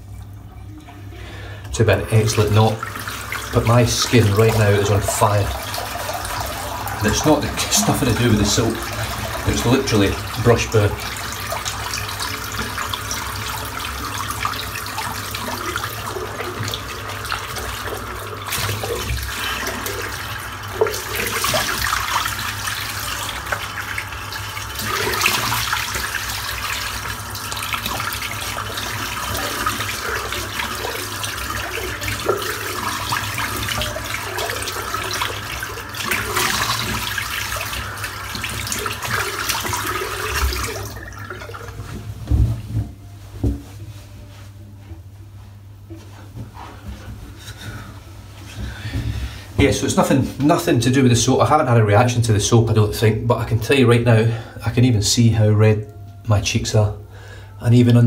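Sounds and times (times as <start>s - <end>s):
water splashing: 1.8s - 42.8s
tap running into sink: 24.7s - 43.7s.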